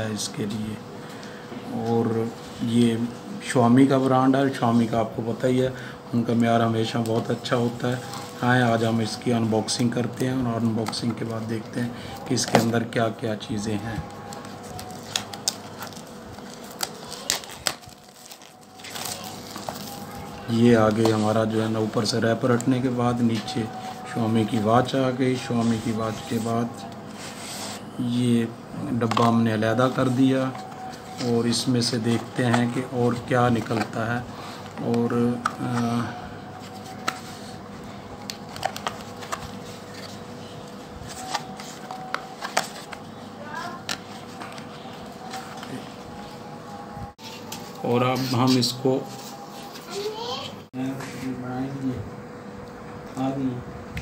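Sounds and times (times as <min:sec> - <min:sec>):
plastic shrink-wrap crinkling: 0:13.7 - 0:24.9.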